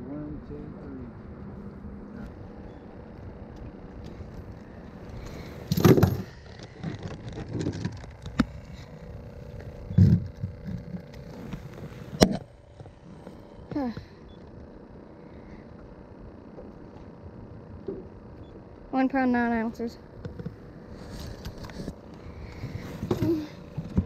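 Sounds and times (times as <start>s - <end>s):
light rattles and bumps: 5.1s - 9.0s.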